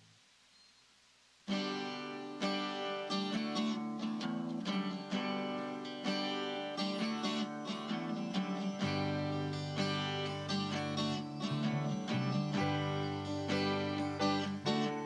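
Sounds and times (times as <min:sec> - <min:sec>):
guitar strumming chords: 0:01.5 - 0:15.0.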